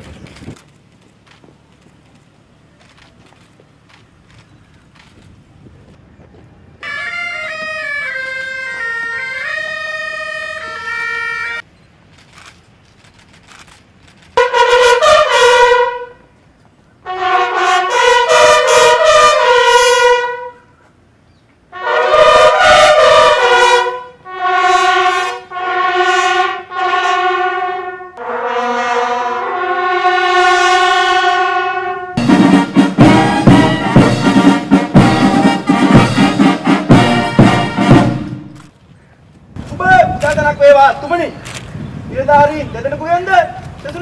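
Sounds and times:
military brass music: 6.8s - 11.6s, 14.2s - 16.4s, 17.0s - 20.7s, 21.7s - 38.7s.

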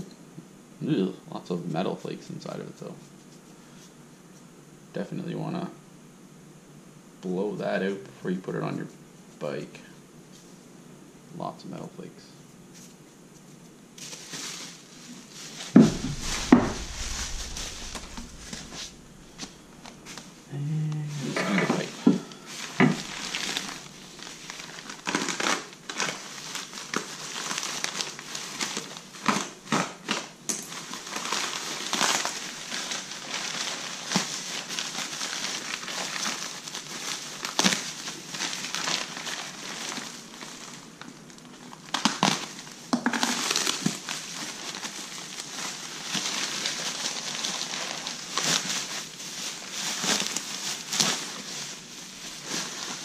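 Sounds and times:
plastic wrap crinkling: 12.8s - 20.4s, 21.8s - 53.0s.

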